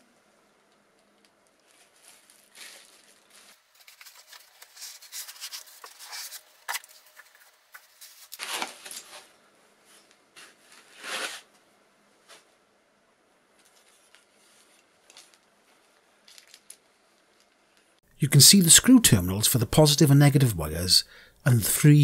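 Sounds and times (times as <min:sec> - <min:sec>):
plastic rustling: 0:00.7 - 0:11.5, 0:13.5 - 0:17.9
bubble wrap crinkling: 0:00.9 - 0:09.3.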